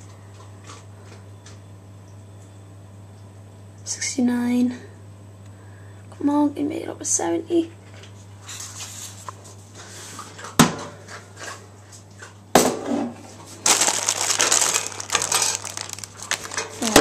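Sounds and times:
low steady hum: 0.0 - 10.4, 13.3 - 17.0
plastic wrappers crinkling: 13.5 - 17.0.

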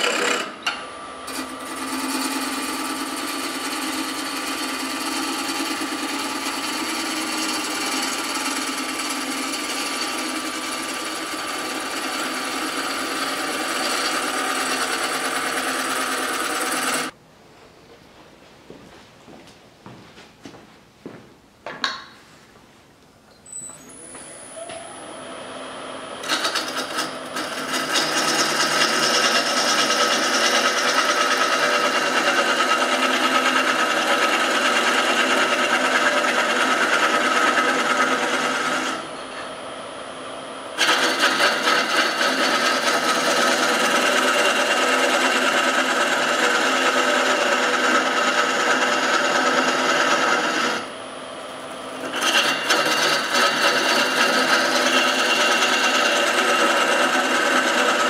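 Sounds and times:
lathe tool rasping wood: 0.0 - 0.6, 1.3 - 17.2, 26.2 - 39.1, 40.8 - 51.0, 51.6 - 58.0
wood lathe running: 0.0 - 17.2, 26.2 - 39.3, 40.8 - 58.0.

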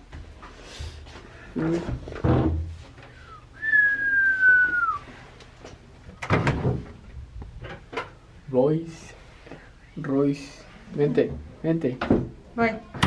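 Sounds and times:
high whistled note: 3.6 - 5.0.

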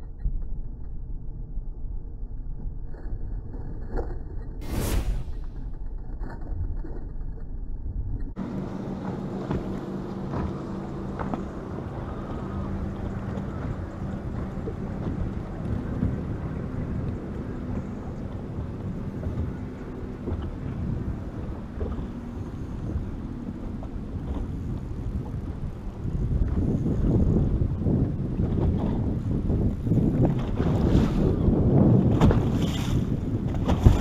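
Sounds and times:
low motor hum: 0.0 - 34.0
wind buffeting microphone: 4.6 - 34.0.

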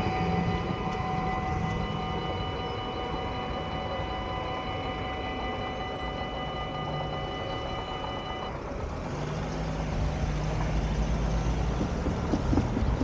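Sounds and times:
level crossing warning bell: 0.0 - 9.0
road traffic hum: 0.0 - 13.0.

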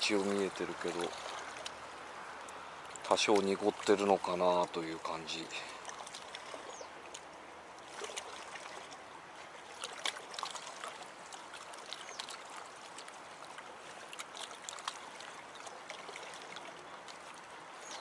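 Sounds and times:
small splashes: 0.0 - 18.0
water lapping against rocks: 0.0 - 18.0.

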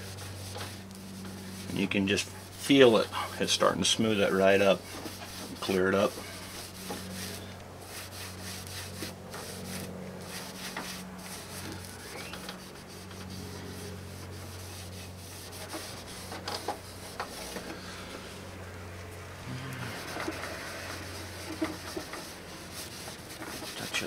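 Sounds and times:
rag wiping plastic lens: 0.0 - 18.6, 19.8 - 24.0
steady low hum: 0.0 - 24.0.

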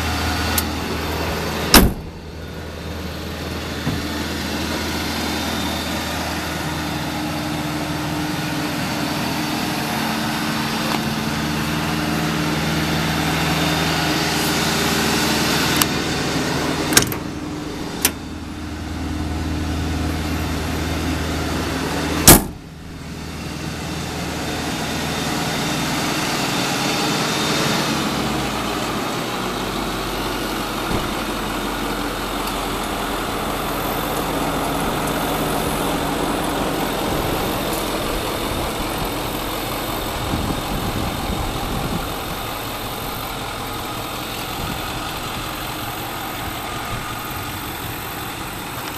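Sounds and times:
truck engine idling: 0.0 - 48.9
compartment door banging shut: 1.7 - 2.2, 22.3 - 22.6
sharp metallic latch clicks: 16.9 - 17.3.

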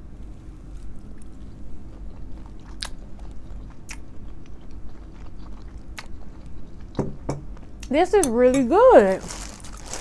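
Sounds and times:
person chewing food: 0.6 - 7.9.

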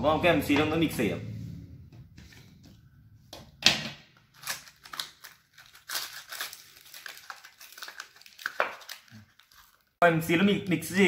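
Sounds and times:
foil wrapper crinkling and tearing: 4.3 - 10.0.

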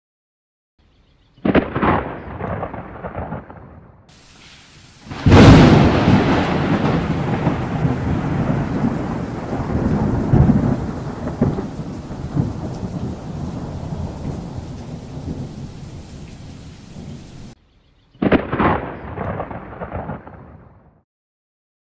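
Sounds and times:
sharp thunderclap: 1.4 - 4.3, 5.0 - 17.6, 18.2 - 21.0
thunder rumbling: 1.4 - 17.6, 18.2 - 21.0
steady rain: 4.1 - 17.6.

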